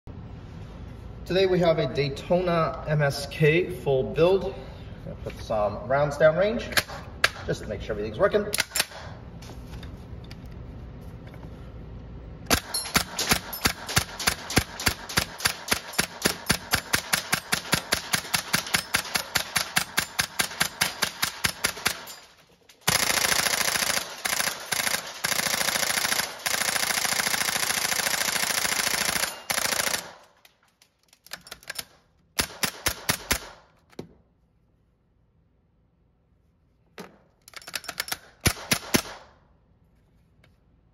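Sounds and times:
airsoft rifle shots: 12.5 - 30.4, 32.4 - 33.8, 38.2 - 39.4.

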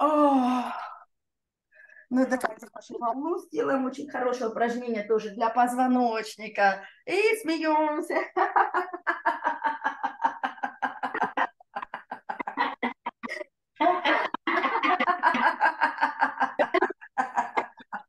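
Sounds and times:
rhythmic laughter: 8.5 - 18.0.

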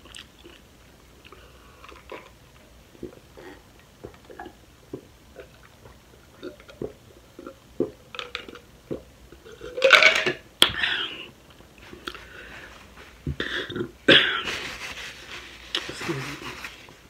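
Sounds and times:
person swallowing soda: 0.0 - 9.9.

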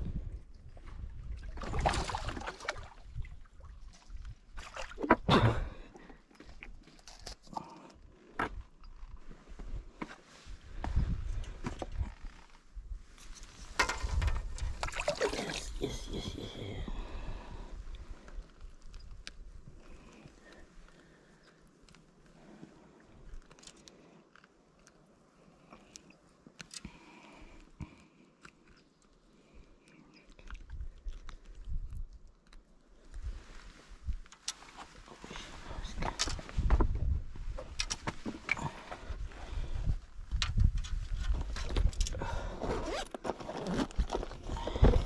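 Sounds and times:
rustling and scraping on rocks: 6.0 - 16.7, 28.6 - 45.0.

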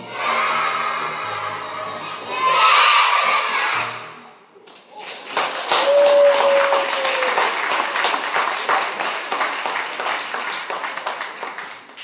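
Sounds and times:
crowd applause: 4.9 - 12.0.

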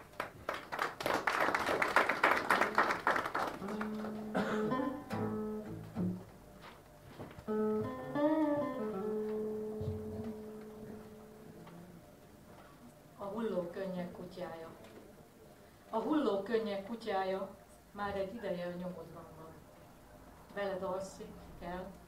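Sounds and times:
applause: 0.0 - 4.2
slow string instrument music: 3.6 - 12.4.

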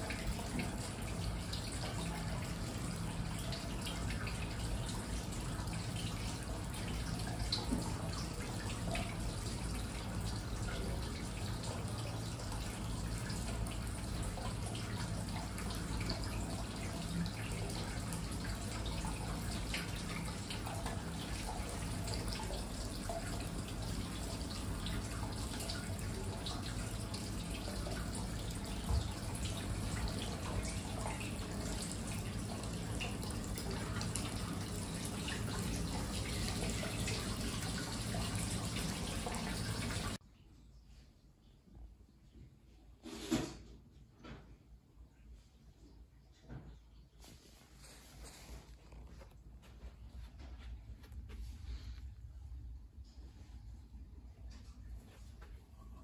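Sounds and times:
water drips and splashes: 0.0 - 40.2
water running into stone bath: 0.0 - 40.2.

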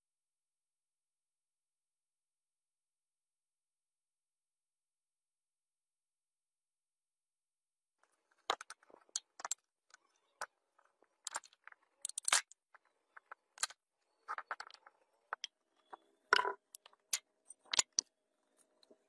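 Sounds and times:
clicks scrapes and knocks: 8.5 - 19.0.

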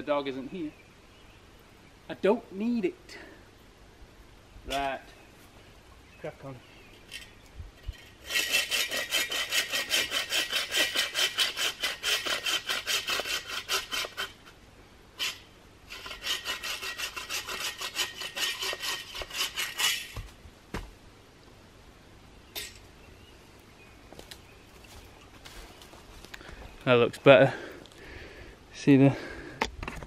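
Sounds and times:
hand saw cutting a branch: 8.2 - 14.5, 15.2 - 20.3.

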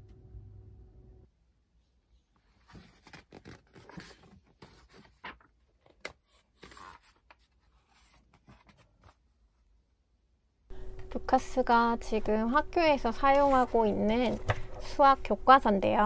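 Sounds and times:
paper pages turning: 2.4 - 9.2, 13.1 - 15.1.

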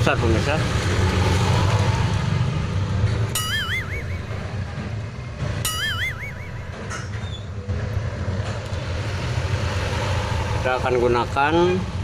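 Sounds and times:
wobbly cartoon whistle: 3.4 - 4.5, 5.7 - 6.8.

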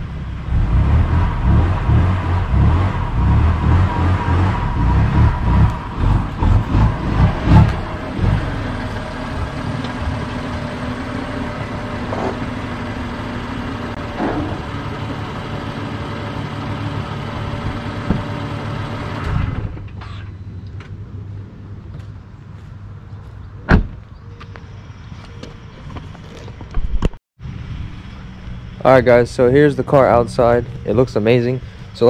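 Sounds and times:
car engine idling: 2.5 - 19.2.

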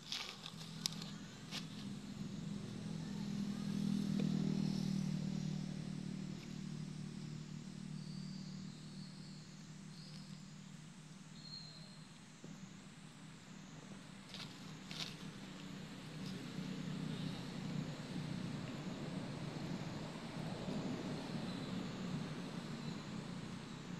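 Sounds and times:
passing vehicle engine drone: 0.9 - 11.1, 14.6 - 23.9
faint high chirps: 11.3 - 12.6.

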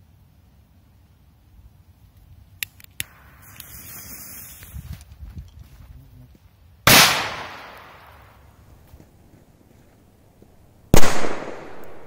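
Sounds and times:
firecracker fuse hissing: 3.0 - 5.2
firecracker bang: 6.9 - 8.2.

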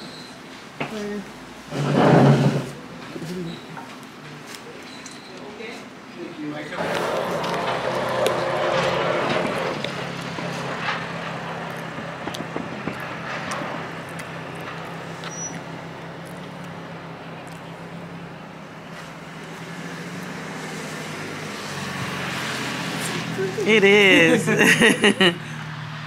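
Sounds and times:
outdoor traffic noise: 0.0 - 26.0
vehicle engine humming: 6.7 - 26.0.

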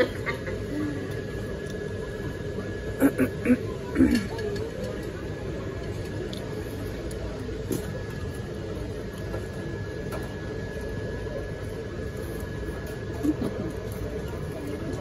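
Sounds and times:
ventilation hum: 0.0 - 15.0.

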